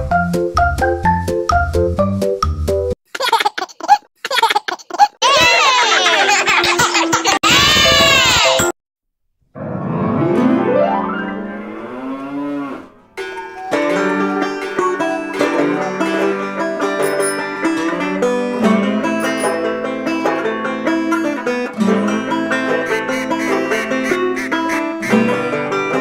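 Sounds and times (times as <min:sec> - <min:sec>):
plucked-string music: 0:13.2 - 0:26.0.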